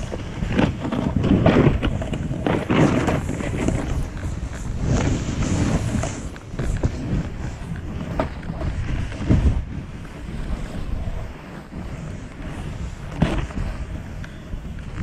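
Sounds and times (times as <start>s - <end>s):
wind buffeting microphone: 0.0s - 15.0s
snowboard hissing through snow: 2.4s - 14.2s.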